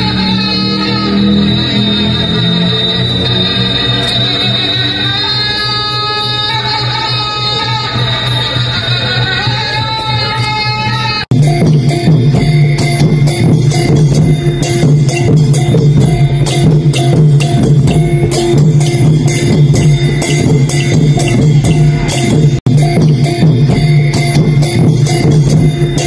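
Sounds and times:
bright percussion hits: 0:11.3 - 0:26.0
fast drum strokes: 0:11.3 - 0:26.0
held low tone: 0:11.3 - 0:26.0.

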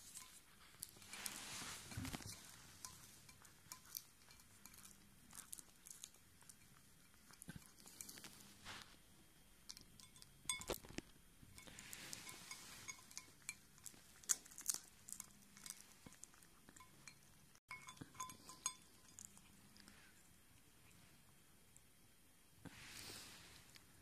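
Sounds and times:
clinks against feeding bowl: 0:00.0 - 0:08.3, 0:09.7 - 0:14.4, 0:15.1 - 0:19.4.

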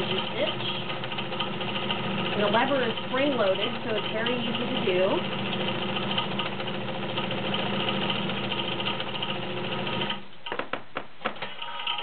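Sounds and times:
sewing machine running: 0:00.0 - 0:10.6, 0:11.4 - 0:12.0
sharp clicks and knocks: 0:10.0 - 0:12.0.

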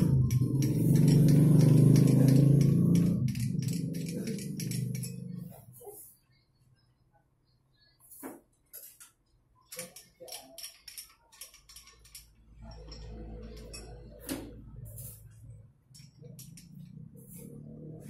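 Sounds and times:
metal tooling clicks and clinks: 0:00.0 - 0:05.5, 0:09.7 - 0:14.3, 0:15.9 - 0:16.9.

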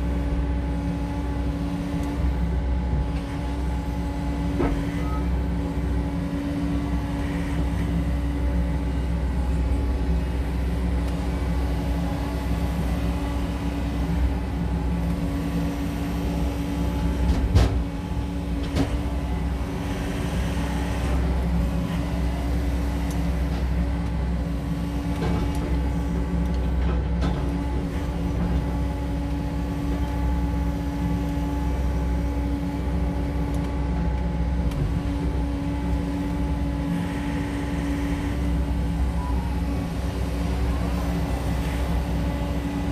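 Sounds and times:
excavator diesel engine running: 0:00.0 - 0:42.9.

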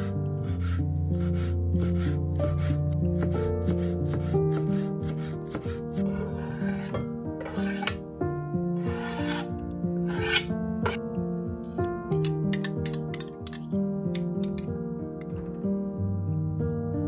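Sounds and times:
knife scraping across board: 0:00.0 - 0:08.0, 0:08.8 - 0:11.0
background music: 0:00.0 - 0:17.0
knife chopping on cutting board: 0:00.5 - 0:08.0.

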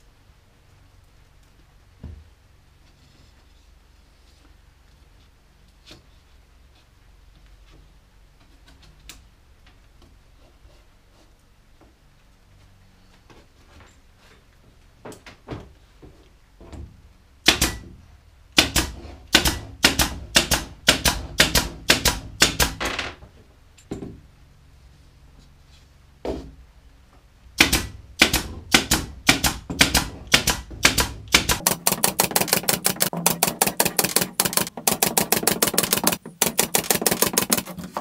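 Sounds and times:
pin nailer firing: 0:17.4 - 0:17.9, 0:18.6 - 0:23.0, 0:27.6 - 0:38.0.

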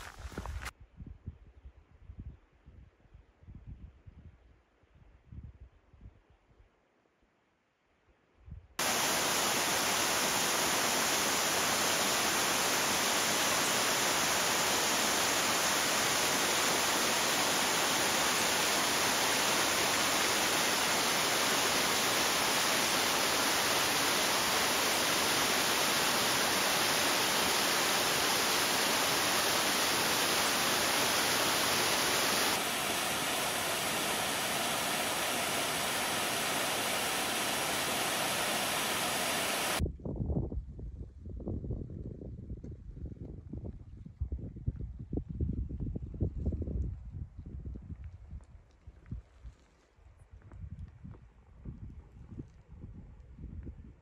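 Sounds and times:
waterfall rushing over rock: 0:08.8 - 0:39.8.

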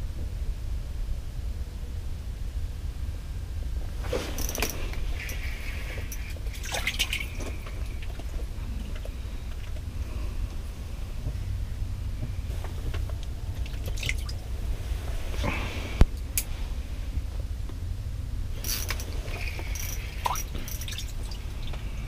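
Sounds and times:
low rumble: 0:00.0 - 0:22.0
handling rustles and clicks: 0:04.0 - 0:09.9.

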